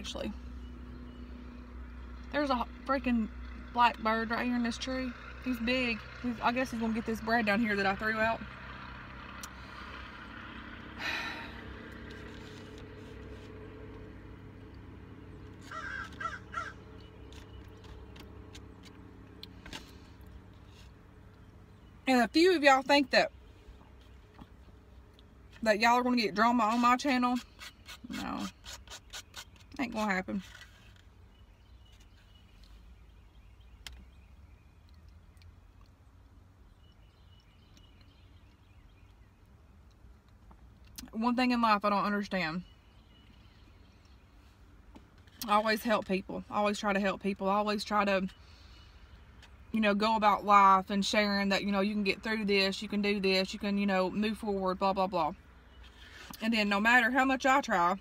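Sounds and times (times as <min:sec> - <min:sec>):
low rumble in car interior: 0:00.0 - 0:58.0
crow cawing: 0:15.7 - 0:16.8.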